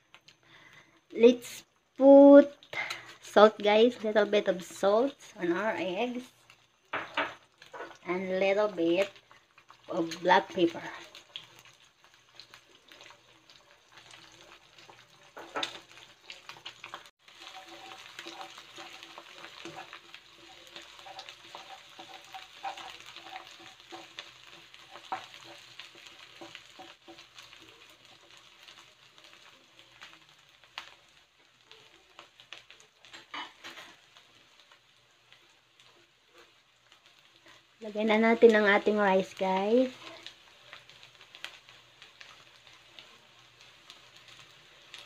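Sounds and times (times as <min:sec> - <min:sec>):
eggs sizzling in a pan: 0:00.0 - 0:45.0
spatula scraping a pan: 0:13.8 - 0:30.1, 0:32.6 - 0:34.8.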